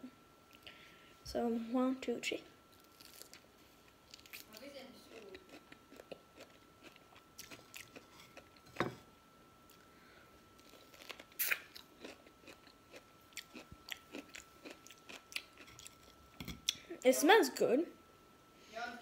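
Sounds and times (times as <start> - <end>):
cucumber crunching while chewed: 2.8 - 8.7, 10.6 - 16.8.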